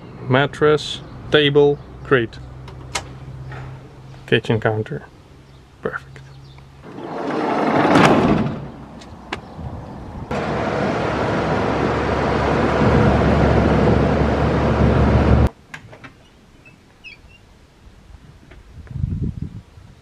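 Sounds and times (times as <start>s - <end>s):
van driving road noise: 0.0s - 15.5s.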